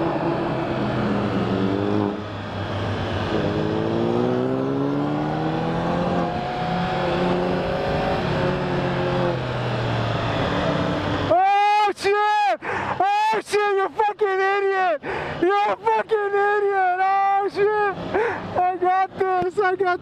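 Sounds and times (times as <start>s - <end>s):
motorcycle engine accelerating: 0.0s - 11.3s.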